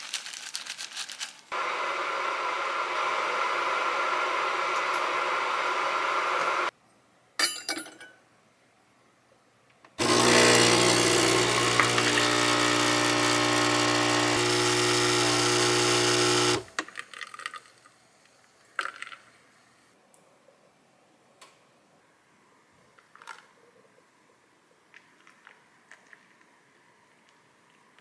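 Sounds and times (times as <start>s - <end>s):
espresso pump buzzing: 1.5s - 6.7s, 10.0s - 16.7s.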